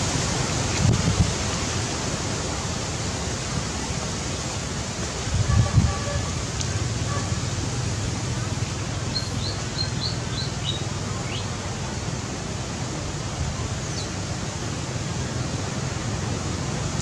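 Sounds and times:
rushing background noise: 0:00.0 - 0:17.0
bird chirping: 0:09.1 - 0:11.4.

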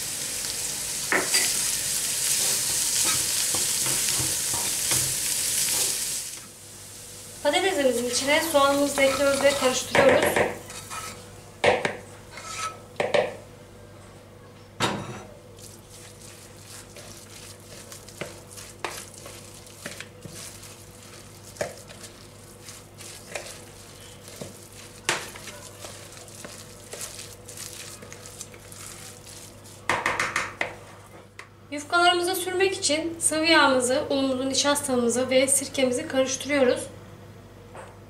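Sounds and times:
wooden spoon scraping metal pan: 0:08.6 - 0:11.2, 0:12.3 - 0:12.8, 0:15.9 - 0:30.5.

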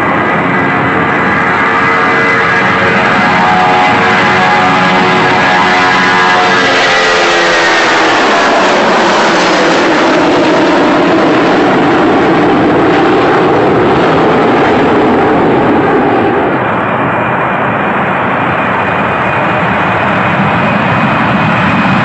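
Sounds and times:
falling pitch glide: 0:00.0 - 0:16.9
aircraft engine roar: 0:00.0 - 0:22.0.

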